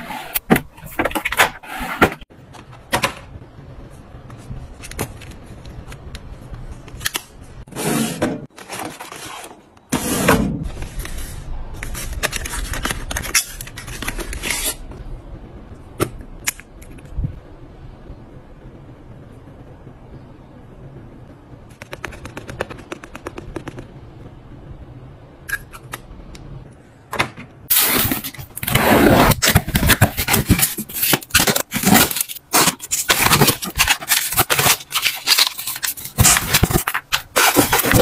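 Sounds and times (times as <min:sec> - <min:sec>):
boxes scraping and sliding: 0:00.0 - 0:02.3, 0:07.7 - 0:11.5, 0:27.7 - 0:38.0
plastic packaging rustling: 0:27.7 - 0:38.0.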